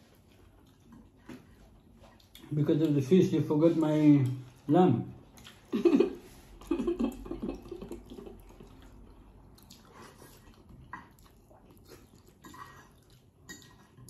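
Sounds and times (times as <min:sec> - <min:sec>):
wet chewing and mouth smacks: 0:00.0 - 0:03.1, 0:05.2 - 0:05.7, 0:07.1 - 0:14.0.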